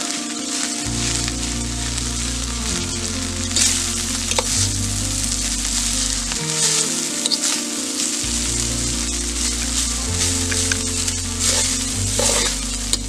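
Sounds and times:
low sustained background music: 0.0s - 13.0s
sizzling hiss: 0.0s - 13.0s
ladle scraping rice in pot: 11.4s - 13.0s.

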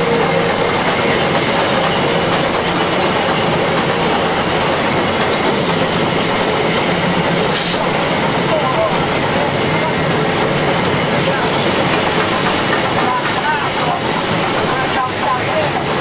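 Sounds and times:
steam locomotive running noise: 0.0s - 16.0s.

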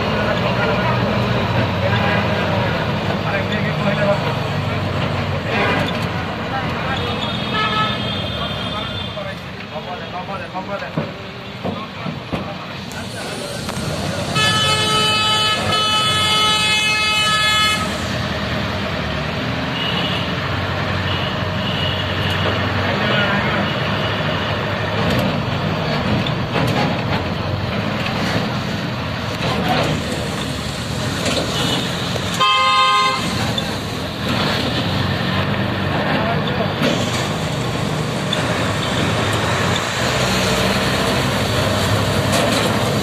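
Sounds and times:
street traffic din: 0.0s - 43.0s
vehicle horn blast: 7.4s - 9.2s, 14.4s - 17.9s, 32.4s - 33.4s.

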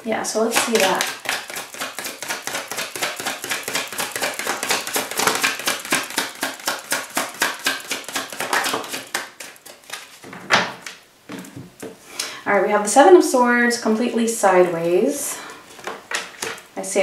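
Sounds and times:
cards being shuffled: 0.5s - 10.3s.

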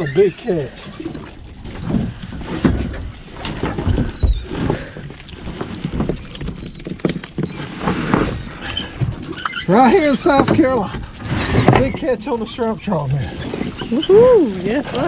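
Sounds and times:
wet rustling and knocks: 1.1s - 12.6s.

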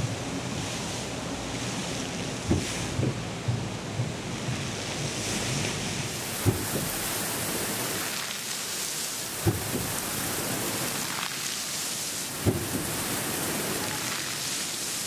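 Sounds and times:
fountain water splashing: 0.0s - 15.0s
short low thump: 2.5s - 5.1s, 6.4s - 6.9s.

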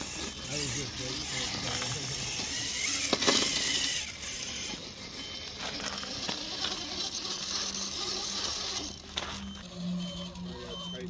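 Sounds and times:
electric motor whine: 0.0s - 11.0s
tires scuffing on rock: 5.4s - 10.2s.

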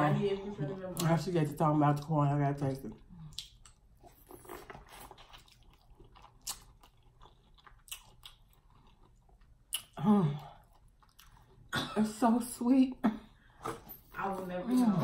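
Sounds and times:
wet chewing of corn: 3.2s - 10.0s, 10.6s - 11.7s.

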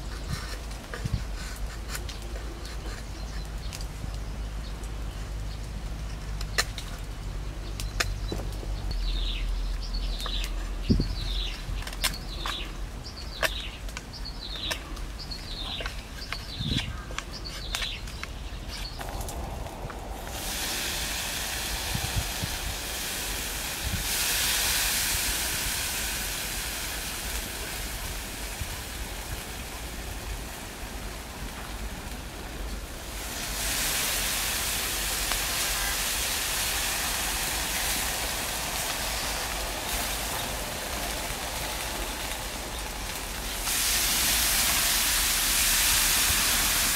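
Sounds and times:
meat sizzling on grill: 18.7s - 46.9s.

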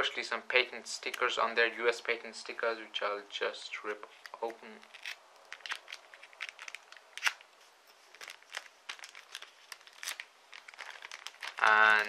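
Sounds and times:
plastic packaging crackling: 4.0s - 12.0s
plastic snapping: 4.2s - 7.5s.

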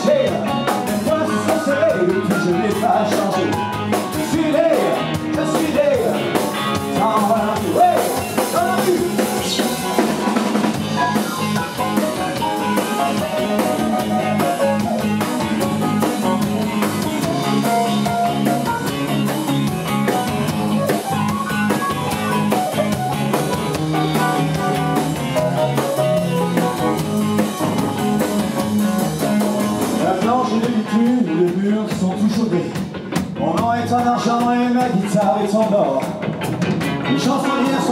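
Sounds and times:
person singing: 0.0s - 12.0s
drum kit: 0.0s - 37.9s
electric guitar: 0.0s - 37.9s
keyboard: 0.0s - 37.9s.

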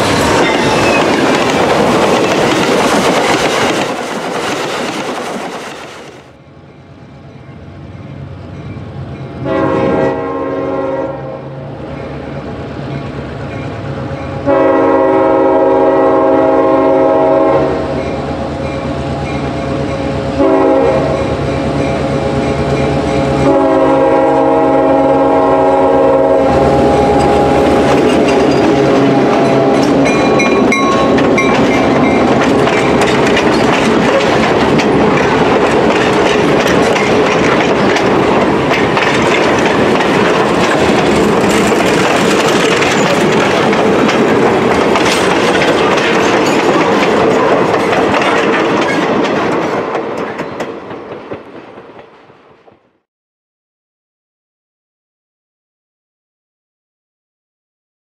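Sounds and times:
train wheels clattering over rail joints: 0.0s - 6.3s, 27.2s - 52.2s
diesel locomotive engine passing: 0.0s - 52.6s
locomotive chime horn: 9.3s - 11.7s, 14.2s - 19.4s, 20.4s - 32.3s.

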